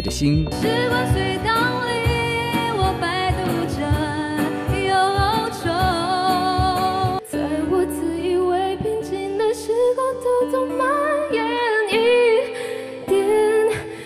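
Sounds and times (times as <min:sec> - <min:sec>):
band with steady beat: 0:00.0 - 0:07.3
woman singing pop ballad: 0:00.6 - 0:14.0.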